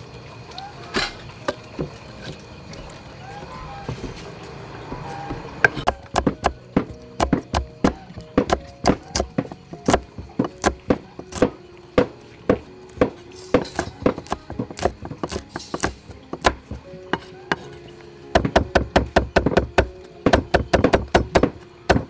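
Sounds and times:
knife chopping on wooden board: 5.3 - 17.6, 18.4 - 22.0.

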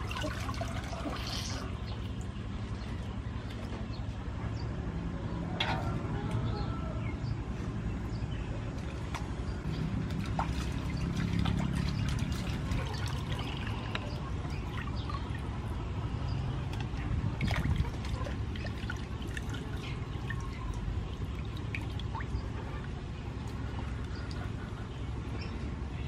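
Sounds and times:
water splashing in metal basin: 0.0 - 2.3, 9.1 - 15.8, 16.7 - 22.5.

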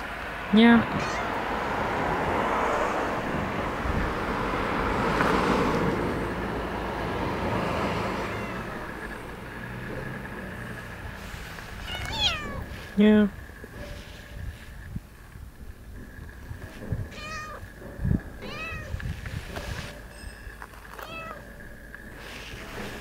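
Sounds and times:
cat meowing: 0.9 - 1.4, 8.1 - 9.0, 11.8 - 12.7, 17.1 - 17.6, 18.4 - 19.0, 21.0 - 21.5
cat fur rubbing on microphone: 11.1 - 15.0, 18.6 - 20.1, 22.1 - 23.0.

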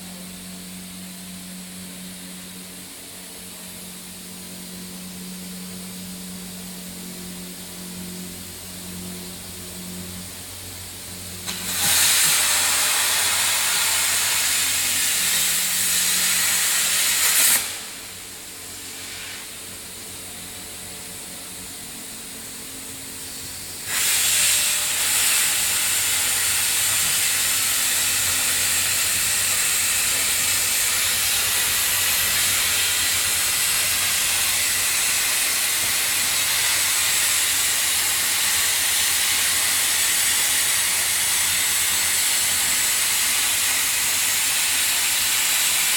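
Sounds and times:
plasma torch arc hissing: 11.4 - 20.5, 23.3 - 45.9.

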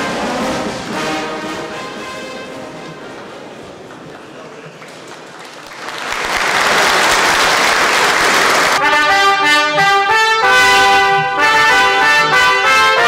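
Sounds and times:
brass band playing: 0.0 - 3.8, 8.3 - 13.0
crowd applauding: 3.5 - 8.8.

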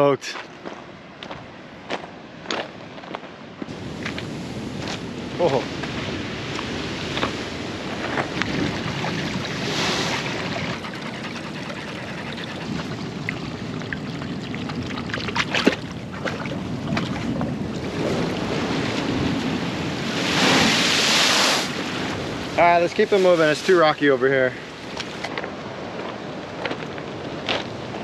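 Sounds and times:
ocean surf breaking on rocks: 3.7 - 11.5, 16.6 - 28.0
wind on microphone: 3.7 - 23.8
wave spray hissing: 9.4 - 13.0, 20.2 - 21.8.

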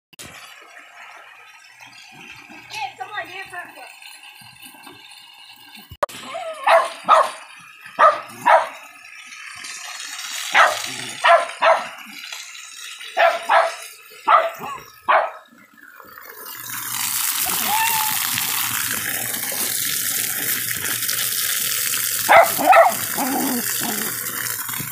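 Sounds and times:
dog barking: 6.6 - 7.4, 8.0 - 8.8, 10.5 - 12.0, 13.2 - 15.4, 22.3 - 24.1.

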